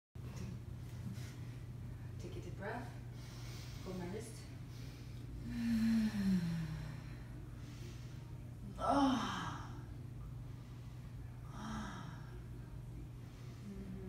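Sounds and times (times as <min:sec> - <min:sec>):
low steady hum: 0:00.2 - 0:14.0
woman breathing softly: 0:03.1 - 0:08.5, 0:09.1 - 0:14.0.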